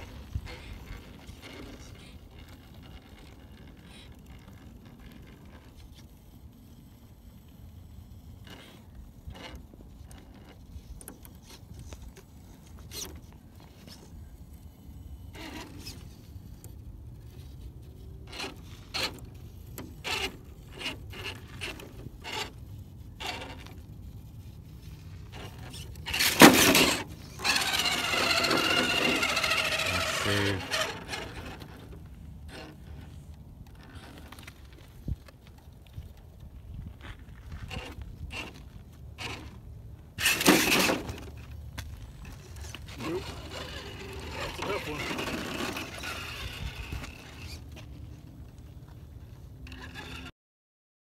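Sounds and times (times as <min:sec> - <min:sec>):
tyres scraping on rock: 0:24.7 - 0:35.3, 0:36.8 - 0:48.1, 0:49.6 - 0:50.3.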